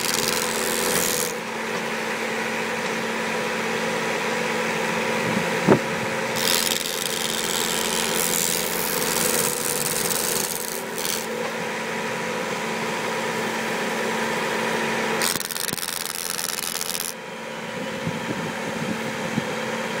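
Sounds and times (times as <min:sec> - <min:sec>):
trimmer humming cutting grass: 0:00.0 - 0:01.7, 0:05.2 - 0:11.7, 0:14.8 - 0:17.2.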